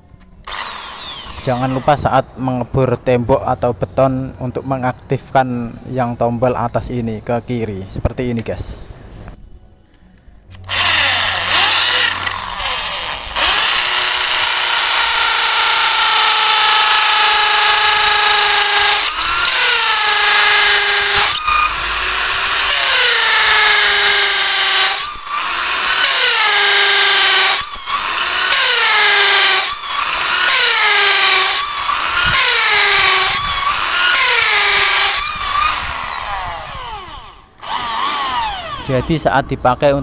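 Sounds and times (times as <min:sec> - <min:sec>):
impact drill boring into concrete: 0:00.5 - 0:02.0, 0:10.7 - 0:39.2.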